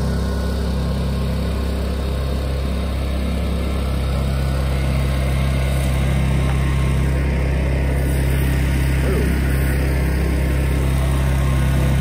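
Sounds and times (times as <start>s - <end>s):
generator engine hum: 0.0s - 12.0s.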